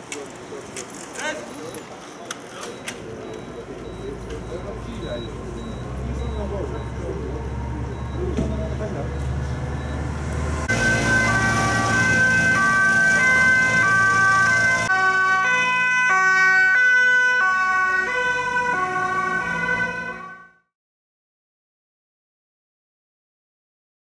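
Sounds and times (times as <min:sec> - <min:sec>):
two-tone emergency sirens: 0:03.1 - 0:20.7.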